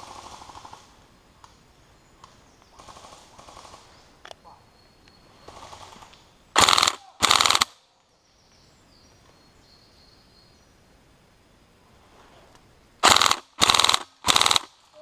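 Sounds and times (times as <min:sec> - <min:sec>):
airsoft rifle firing bursts: 0:06.6 - 0:07.8, 0:13.0 - 0:14.8
faint gunfire rattle: 0:06.6 - 0:07.8, 0:13.0 - 0:14.8.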